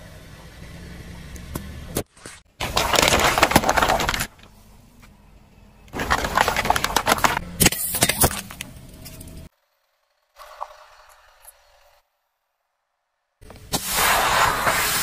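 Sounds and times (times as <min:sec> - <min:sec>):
plastic bottles crunching under tyre: 0:02.6 - 0:04.5, 0:05.9 - 0:08.6.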